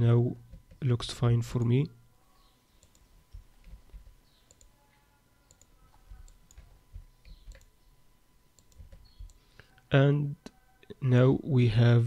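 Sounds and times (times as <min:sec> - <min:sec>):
computer mouse clicks: 0:02.8 - 0:04.7, 0:05.5 - 0:07.7, 0:08.6 - 0:09.4.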